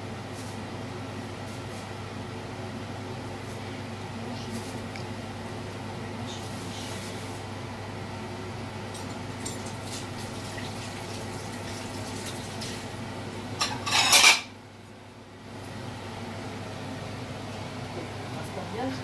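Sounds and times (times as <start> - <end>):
steady low hum: 0.0 - 10.5, 12.7 - 19.0
loud kitchen clatter: 13.6 - 14.6.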